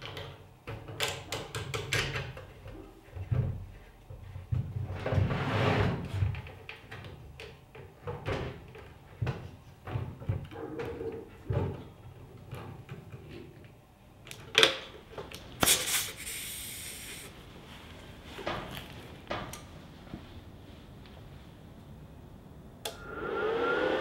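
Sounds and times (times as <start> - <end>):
air hose hiss: 15.6 - 17.3.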